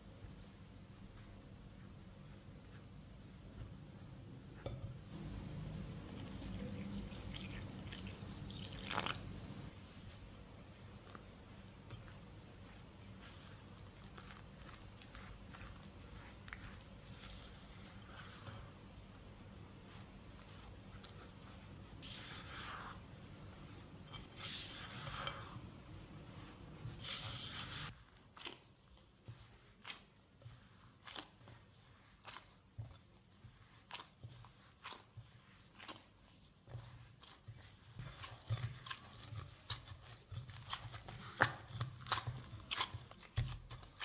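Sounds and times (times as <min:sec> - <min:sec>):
low steady hum: 0:00.0 - 0:34.8
hand kneading sticky dough: 0:00.0 - 0:44.0
spatula scraping dough in bowl: 0:11.1 - 0:44.0.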